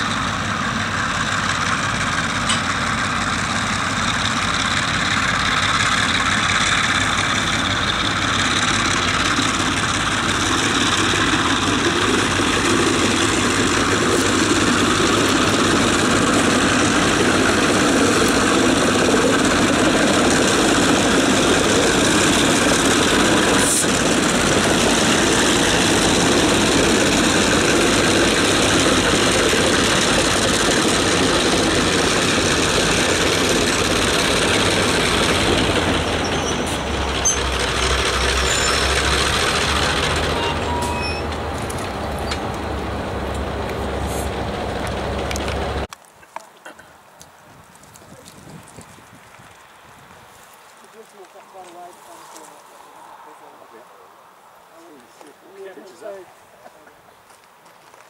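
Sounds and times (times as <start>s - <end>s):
carriages rolling on rails: 0.0s - 45.9s
diesel locomotive engines running: 0.0s - 46.0s, 47.8s - 53.8s.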